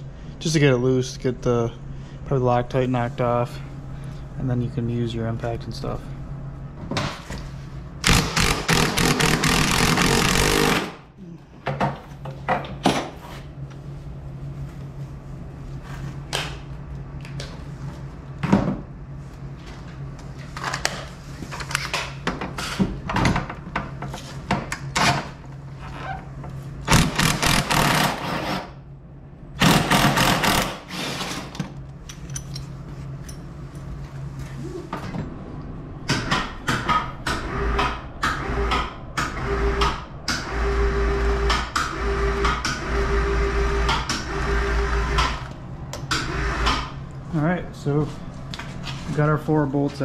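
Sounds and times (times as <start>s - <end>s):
impact driver hammering: 8.0s - 11.0s, 26.9s - 28.4s, 29.6s - 31.0s.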